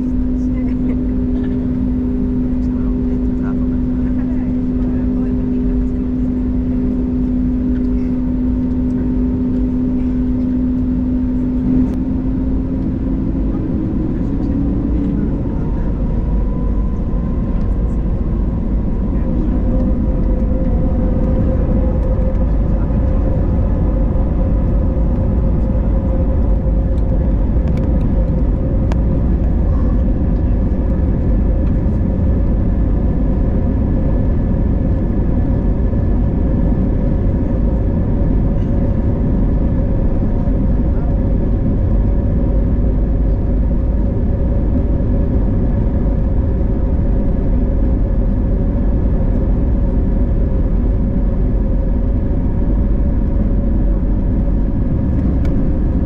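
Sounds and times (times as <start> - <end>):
airplane cabin rumble: 0.0 - 56.0.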